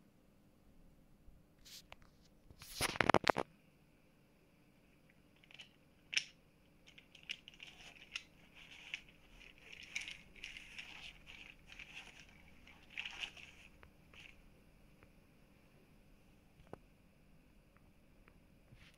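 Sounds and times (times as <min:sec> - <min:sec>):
plastic hand rustling and clicking: 0:05.4 - 0:14.4.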